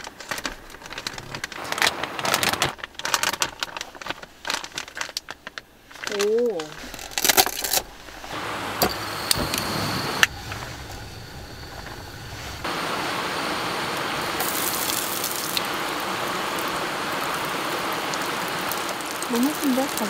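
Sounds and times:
food sizzling in frying pan: 0:12.6 - 0:20.0.

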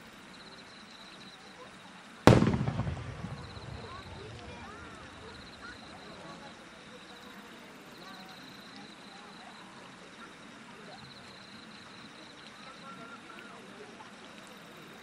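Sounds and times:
crowd murmuring: 0:02.3 - 0:08.2.

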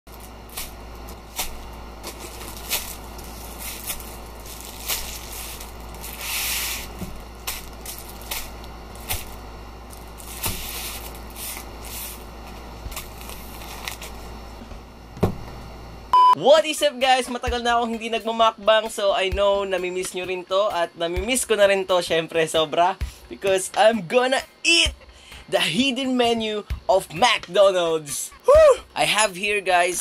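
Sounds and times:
paper wrappers crinkling: 0:00.1 - 0:12.3, 0:12.9 - 0:14.2.

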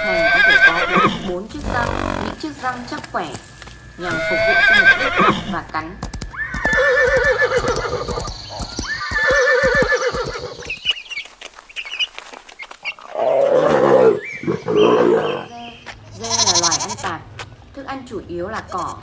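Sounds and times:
horse whinnying: 0:00.0 - 0:02.5, 0:04.0 - 0:05.6, 0:06.3 - 0:10.8, 0:13.0 - 0:15.5
coarse animal calls: 0:00.0 - 0:02.9, 0:03.8 - 0:05.6, 0:06.3 - 0:17.1.

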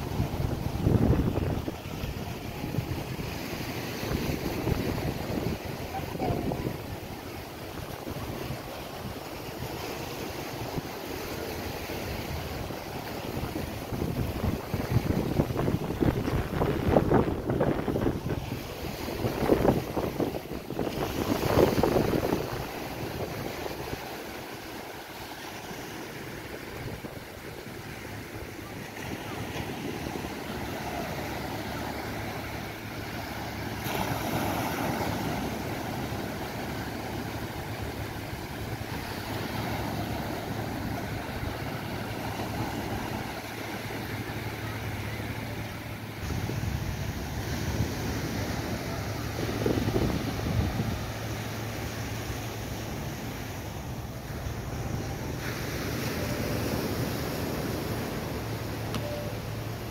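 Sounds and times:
wind buffeting microphone: 0:00.0 - 0:24.9, 0:46.1 - 0:58.6
low steady hum: 0:00.0 - 0:59.9
small waves breaking on shore: 0:00.0 - 0:59.9.

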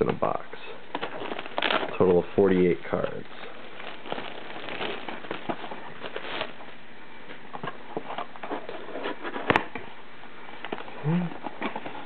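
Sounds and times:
cardboard scraping and rustling: 0:00.9 - 0:02.2, 0:02.9 - 0:06.7, 0:07.4 - 0:09.9, 0:10.6 - 0:12.0.

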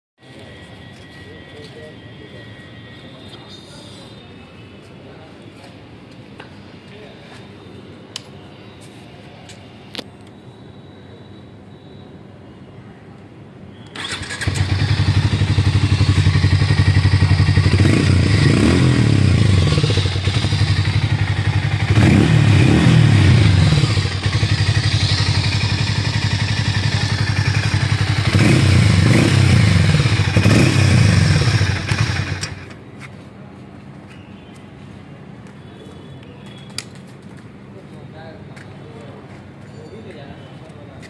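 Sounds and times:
motorcycle engine idling and revving: 0:14.0 - 0:32.8.

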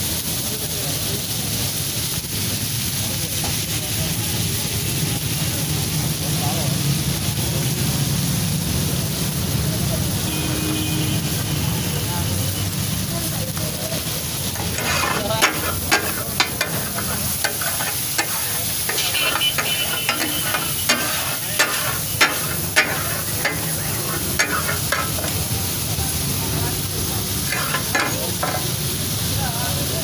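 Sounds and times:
fish sizzling in oil: 0:00.0 - 0:30.0
metal spatulas clacking on griddle: 0:14.6 - 0:25.4, 0:27.4 - 0:28.8.

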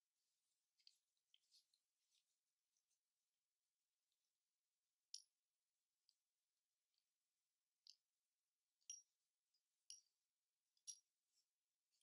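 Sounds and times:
faint metallic clicks: 0:08.8 - 0:10.2.

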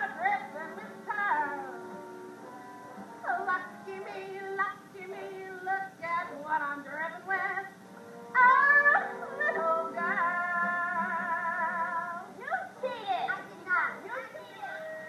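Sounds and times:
woman belting a show tune: 0:08.4 - 0:12.6.

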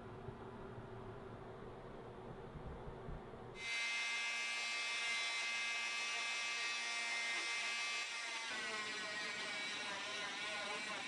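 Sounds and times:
multi-tool buzzing whine: 0:03.6 - 0:11.0.

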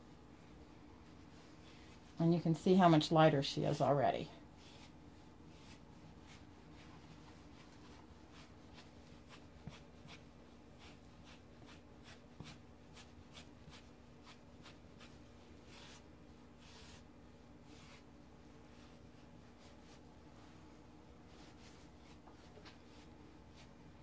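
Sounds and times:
steady low hum: 0:00.0 - 0:24.0
shedding tool scratching fur: 0:04.6 - 0:18.1.

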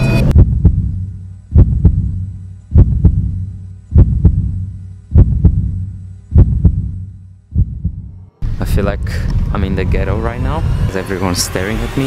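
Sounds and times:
heartbeat double thump: 0:00.2 - 0:08.2.

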